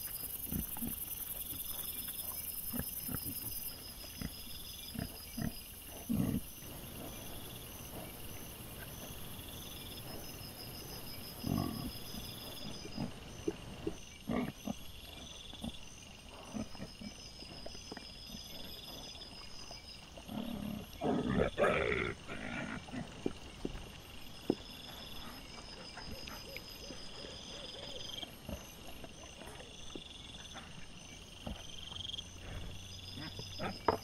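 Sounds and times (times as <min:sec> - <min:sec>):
wild boars grunting: 0:00.0 - 0:19.4, 0:20.2 - 0:23.8, 0:24.4 - 0:34.0.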